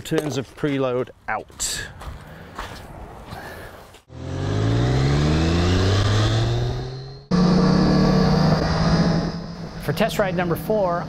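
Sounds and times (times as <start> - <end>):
motorcycle engine accelerating: 4.1 - 11.0.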